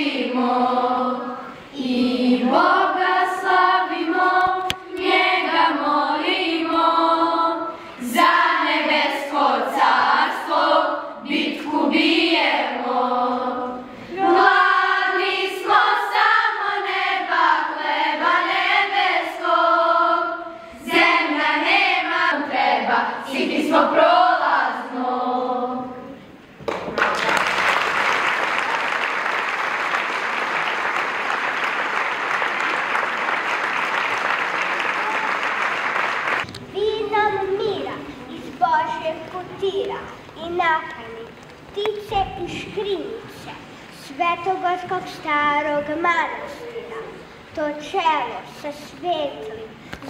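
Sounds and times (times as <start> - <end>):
girls choir singing: 0.0 - 26.4.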